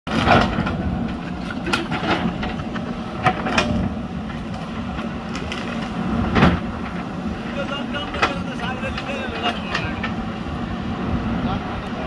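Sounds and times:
diesel engine running: 0:00.1 - 0:12.0.

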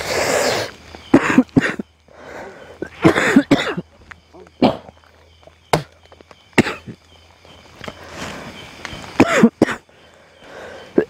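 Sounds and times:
man coughing and grunting: 0:01.1 - 0:01.8, 0:02.8 - 0:03.8, 0:04.6 - 0:05.0, 0:06.6 - 0:07.0, 0:09.2 - 0:09.8.

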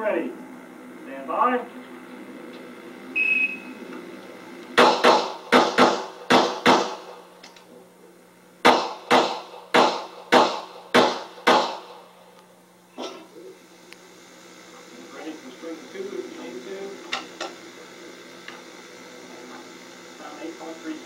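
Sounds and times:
shot timer beep: 0:03.2 - 0:03.7
pistol shots: 0:04.8 - 0:07.1, 0:08.6 - 0:12.0.

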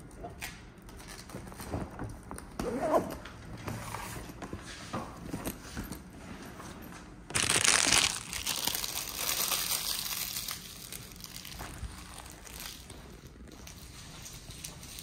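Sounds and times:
crinkling rustling: 0:07.3 - 0:15.0.

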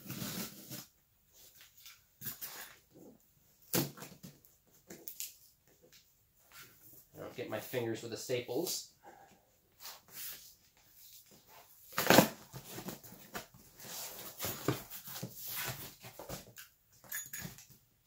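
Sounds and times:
cardboard box tearing open: 0:12.0 - 0:12.8.

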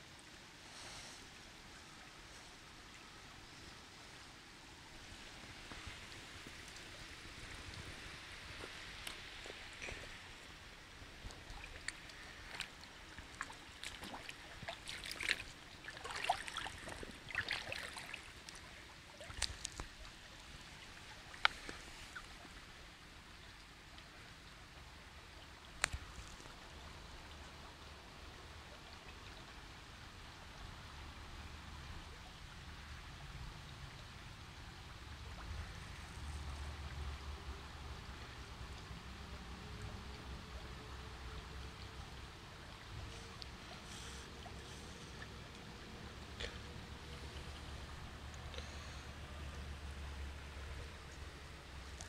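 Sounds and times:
stream trickling over stones: 0:00.0 - 0:52.0
small water splashes: 0:04.9 - 0:30.0.

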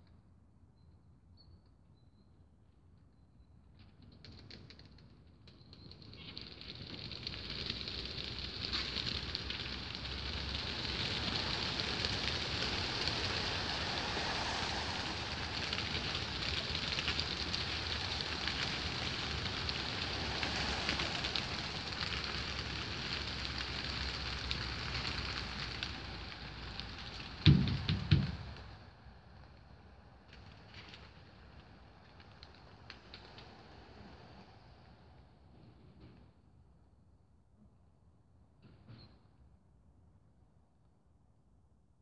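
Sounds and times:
pigeon wings fluttering: 0:04.2 - 0:26.1.

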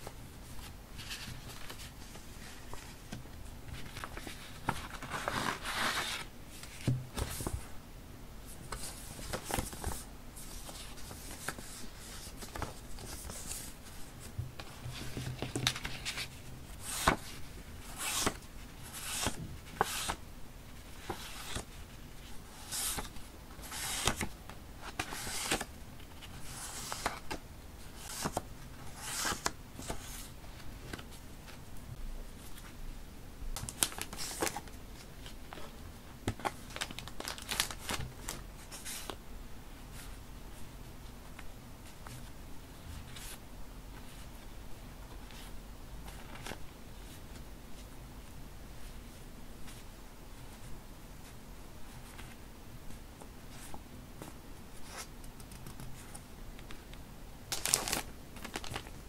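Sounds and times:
paper rustling and sliding: 0:00.4 - 0:07.7, 0:08.5 - 0:20.2, 0:20.8 - 0:31.2
plastic packaging crinkling: 0:36.7 - 0:38.0, 0:57.5 - 0:59.0.

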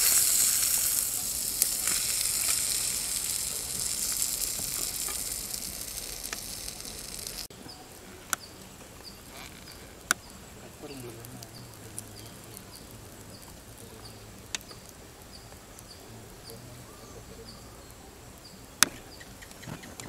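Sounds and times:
fish sizzling in oil: 0:00.0 - 0:16.5
faint chirping: 0:00.0 - 0:20.0.

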